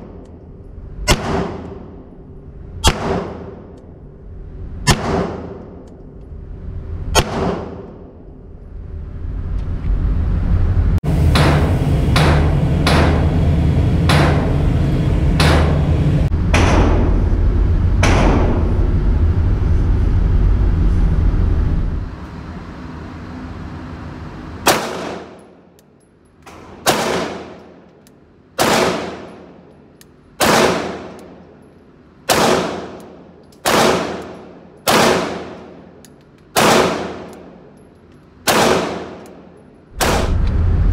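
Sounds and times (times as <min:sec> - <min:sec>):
low rumble: 0:00.0 - 0:25.8, 0:39.1 - 0:40.9
pistol shots with ringing echo: 0:01.0 - 0:02.1, 0:02.8 - 0:03.8, 0:04.8 - 0:05.9, 0:07.2 - 0:08.2, 0:24.6 - 0:25.7, 0:26.5 - 0:27.9, 0:28.6 - 0:29.7, 0:30.4 - 0:31.5, 0:32.2 - 0:37.8, 0:38.4 - 0:40.3.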